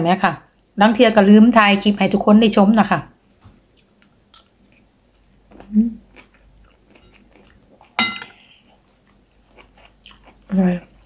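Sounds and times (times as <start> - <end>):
person chewing noodle soup: 3.7 - 11.0
person humming: 5.7 - 6.0
cutlery clinking on ceramic bowl: 8.0 - 8.4.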